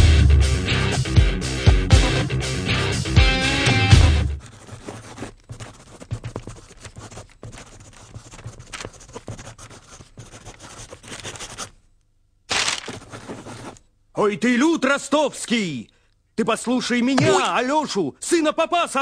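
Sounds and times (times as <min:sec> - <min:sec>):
pencil scratching on paper: 0:04.4 - 0:11.8, 0:12.9 - 0:13.8.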